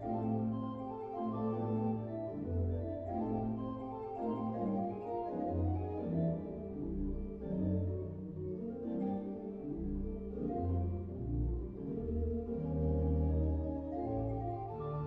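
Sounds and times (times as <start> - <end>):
pipe organ playing chords: 0.0 - 15.0.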